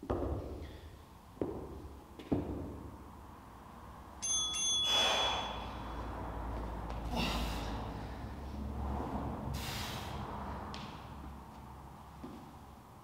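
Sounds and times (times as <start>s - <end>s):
interval timer chime: 4.2s - 5.6s
heavy breathy exhales: 4.9s - 6.0s, 7.1s - 10.6s.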